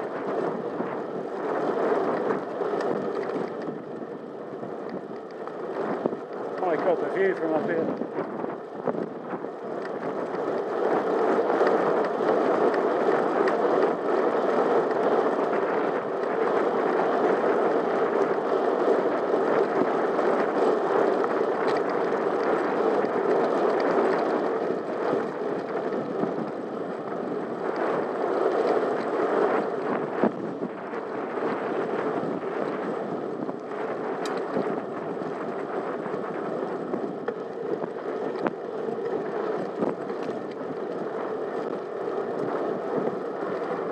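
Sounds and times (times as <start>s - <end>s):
bicycle tyre noise on tarmac: 0.0s - 43.9s
wind on microphone: 0.0s - 43.9s
faint ticks: 4.8s - 6.8s, 21.1s - 24.4s, 33.6s - 34.8s, 37.0s - 43.8s.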